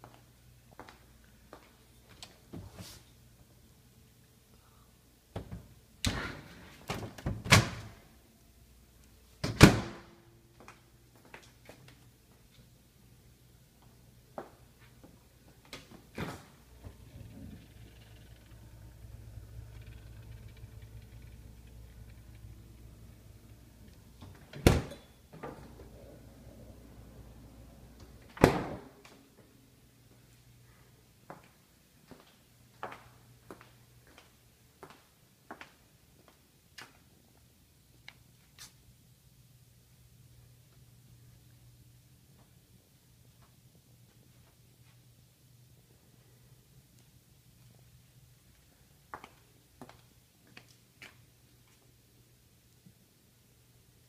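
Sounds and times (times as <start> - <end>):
low steady hum: 0.2 - 34.6
door slamming shut: 6.0 - 8.0, 9.4 - 10.2, 24.3 - 25.6, 28.3 - 29.0
door slamming: 9.4 - 10.2, 24.3 - 25.2, 28.3 - 29.0
kitchen doors clunking shut: 24.2 - 25.8.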